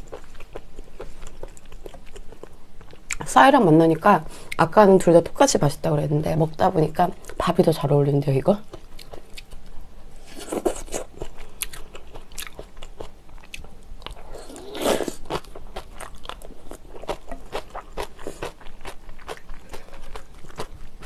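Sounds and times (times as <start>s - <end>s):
person eating crunchy bites: 8.7s - 21.0s.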